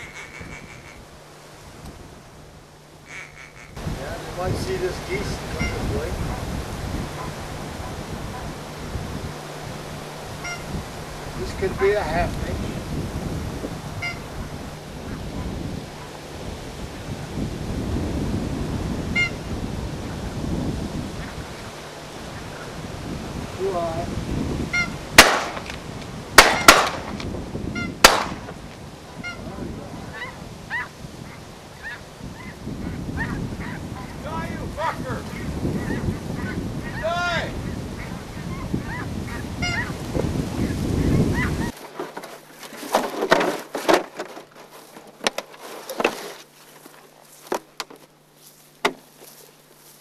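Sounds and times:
geese honking: 0.0s - 1.4s, 2.5s - 17.4s, 18.9s - 20.4s, 21.0s - 23.8s, 24.6s - 25.8s, 26.4s - 42.0s
shotgun blasts: 25.2s - 25.8s, 26.4s - 27.2s, 28.0s - 28.5s
footsteps in dry stubble: 39.8s - 50.0s
plastic decoys knocking: 48.8s - 49.1s.

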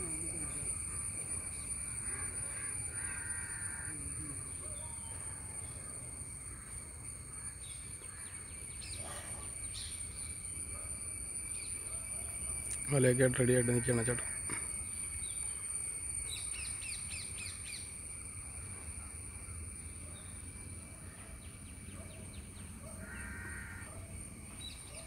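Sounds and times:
crow cawing: 1.9s - 4.1s, 6.5s - 8.4s, 22.9s - 24.0s.

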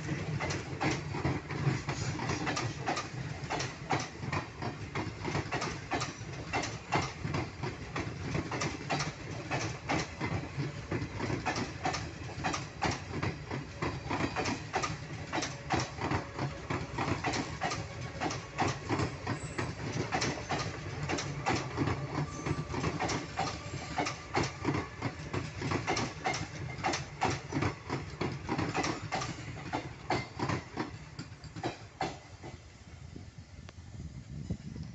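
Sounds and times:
wheels clacking over rail joints: 0.0s - 32.7s
train coaches rumbling: 0.0s - 34.9s.

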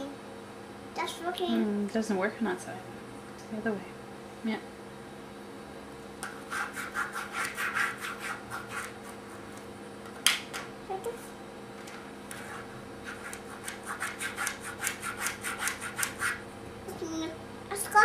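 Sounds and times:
pen scribbling on paper: 6.4s - 9.2s, 12.3s - 16.4s.

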